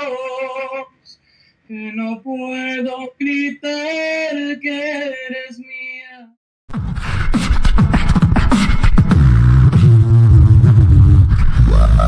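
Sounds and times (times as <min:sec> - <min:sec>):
person singing: 0:00.0 - 0:06.3, 0:09.4 - 0:12.0
bass-heavy outro sting: 0:09.0 - 0:12.0.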